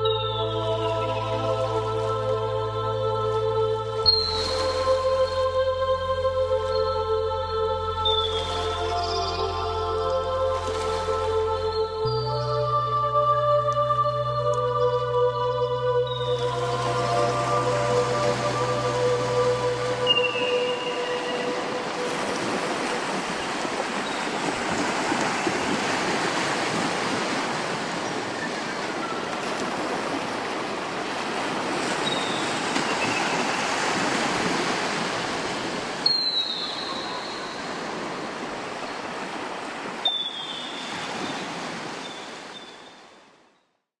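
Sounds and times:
ocean surf washing: 14.5s - 43.1s.

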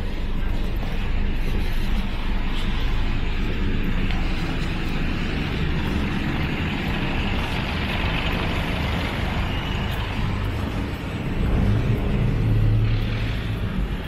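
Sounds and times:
vans and cars idling in traffic: 0.0s - 14.0s.

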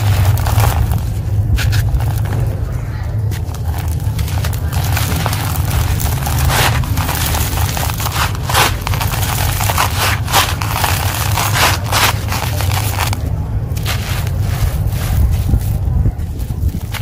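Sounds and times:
gritty crunching and rustling: 0.0s - 17.0s
low rumble: 0.0s - 17.0s.

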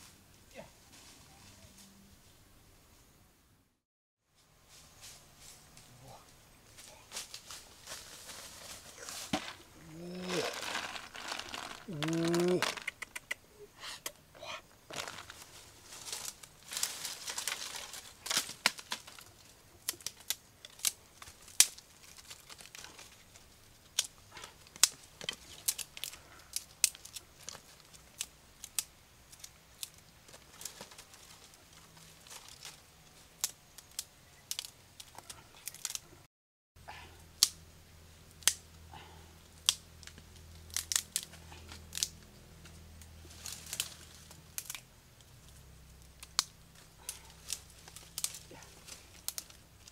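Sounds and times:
dry sticks and leaves handled: 4.4s - 13.3s, 14.9s - 36.2s, 38.3s - 49.9s
snail shells clattering: 9.3s - 13.3s.

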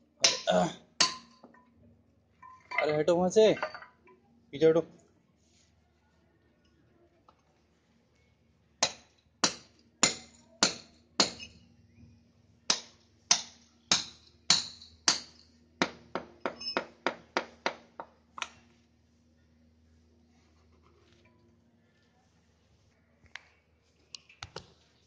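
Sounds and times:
hammer striking concrete: 8.8s - 11.5s, 12.7s - 18.1s.

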